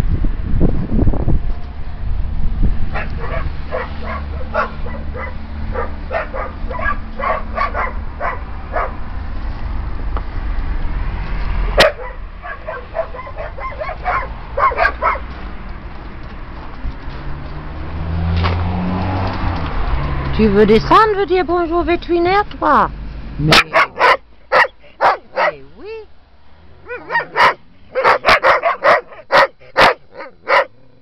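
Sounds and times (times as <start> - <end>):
dogs barking and yipping: 2.8 - 9.2, 11.6 - 15.5, 23.5 - 25.6, 26.8 - 30.8.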